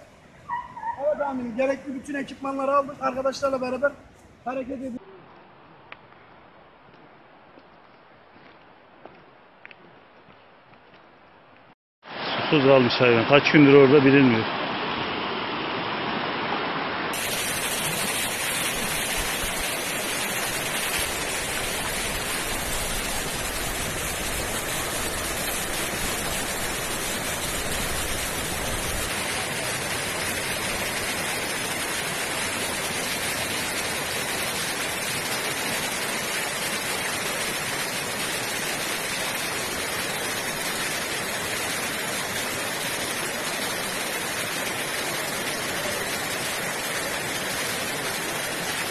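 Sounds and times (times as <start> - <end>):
fast-flowing river rushing: 12.1 - 48.9.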